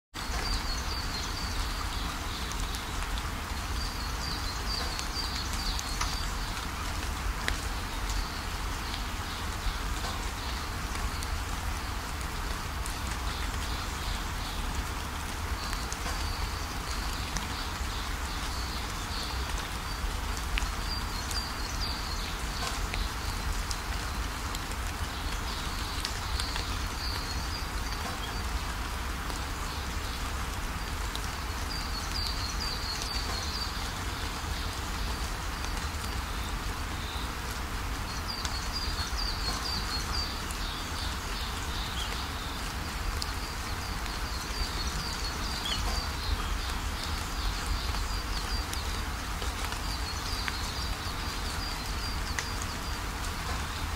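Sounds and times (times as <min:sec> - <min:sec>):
steady rain falling: 0:00.1 - 0:53.9
birds chirping: 0:31.2 - 0:53.9.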